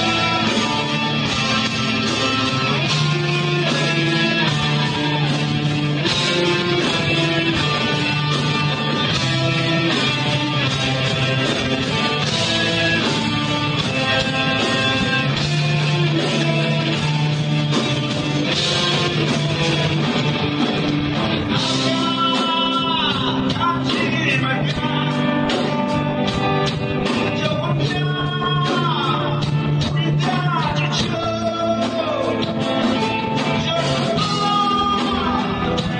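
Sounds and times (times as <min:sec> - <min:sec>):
distorted electric guitar: 0:00.0 - 0:35.9
rock band playing live: 0:00.0 - 0:35.9
person singing: 0:21.5 - 0:26.0, 0:27.0 - 0:35.9.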